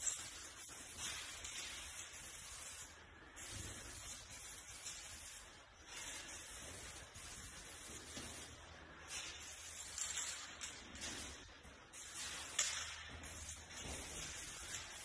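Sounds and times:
spray paint can hissing: 0.0 - 8.6.

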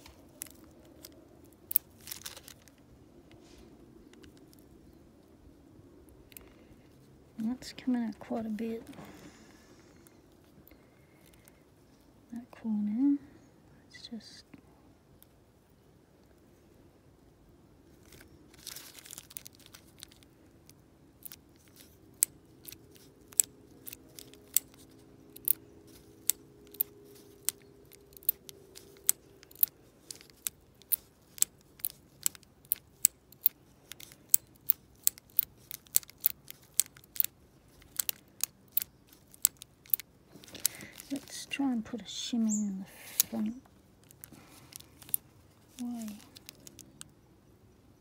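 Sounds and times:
lock pick clicking in lock: 21.2 - 41.2.

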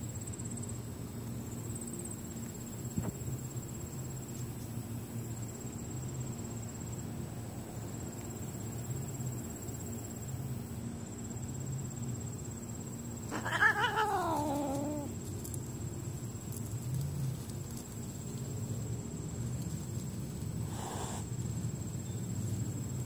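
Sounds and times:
high-pitched insect trill: 0.0 - 23.0
cat meowing: 13.3 - 15.1.

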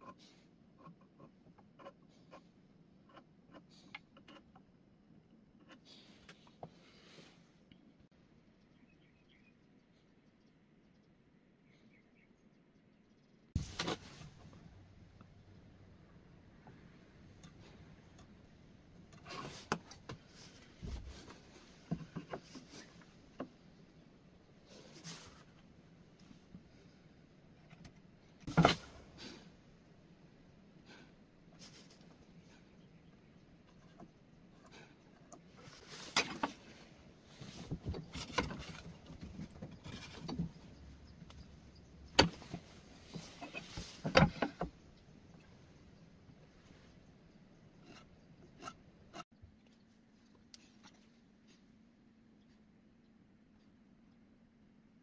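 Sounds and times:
metal scraping over wood: 35.6 - 40.7.

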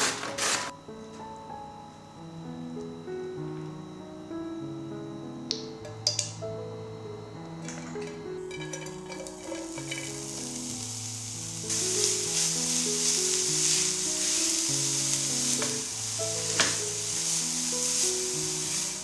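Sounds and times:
sharp click: 5.5 - 6.4
food sizzling in hot oil: 7.6 - 19.0.

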